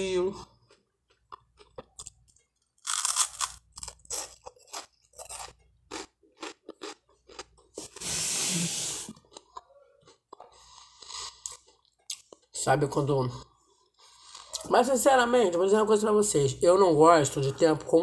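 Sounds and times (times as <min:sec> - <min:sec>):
crunching and chewing toast: 0:00.5 - 0:08.0, 0:09.1 - 0:12.5.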